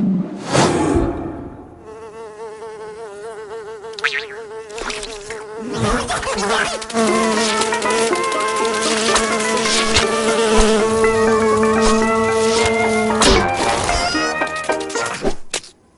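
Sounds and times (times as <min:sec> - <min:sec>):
cartoon fly buzzing: 0:01.8 - 0:15.3
lower buzz: 0:03.8 - 0:14.1.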